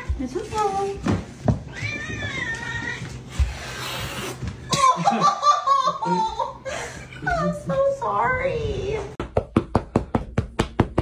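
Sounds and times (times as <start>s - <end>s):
cat meowing: 1.7s - 3.2s.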